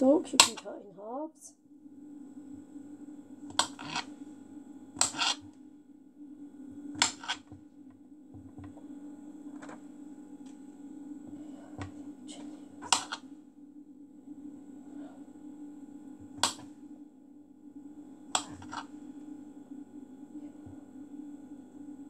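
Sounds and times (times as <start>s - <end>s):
steady low hum: 0.0s - 22.0s
knife striking chopping board: 5.0s - 5.4s, 7.0s - 7.4s.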